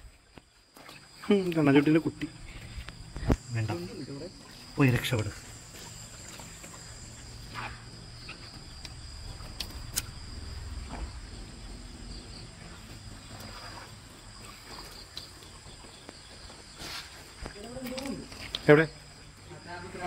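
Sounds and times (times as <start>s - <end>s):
crickets trilling: 0.0s - 20.0s
low rumble: 7.3s - 13.3s.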